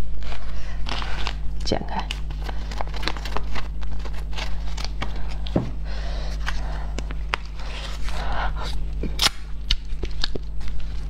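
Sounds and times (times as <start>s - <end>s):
plastic crinkling: 0.0s - 5.6s, 9.0s - 11.0s
low electrical hum: 0.0s - 11.0s.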